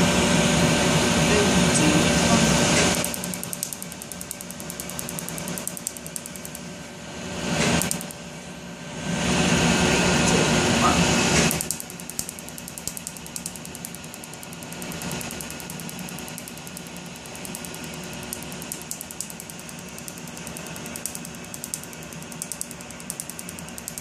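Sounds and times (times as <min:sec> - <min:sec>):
machine hum: 0:00.0 - 0:24.0
laser snapping clicks: 0:02.8 - 0:06.6, 0:07.7 - 0:08.2, 0:11.4 - 0:24.0.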